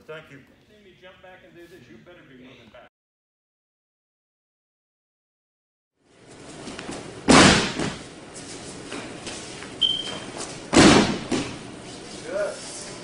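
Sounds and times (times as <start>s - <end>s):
body landing on mat with thud: 6.9s - 8.1s, 10.1s - 11.6s.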